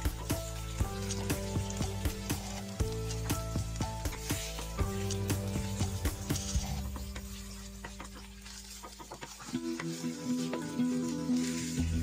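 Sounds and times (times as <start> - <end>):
background music with steady beat: 0.0 - 12.0
meat and onions sizzling in oil: 0.0 - 12.0.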